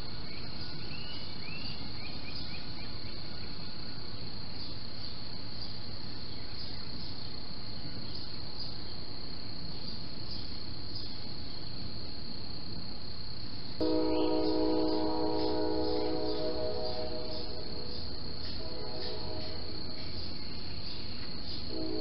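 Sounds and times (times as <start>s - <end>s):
crickets trilling: 0.0s - 22.0s
low even hiss: 0.0s - 22.0s
bird chirps: 13.8s - 21.7s.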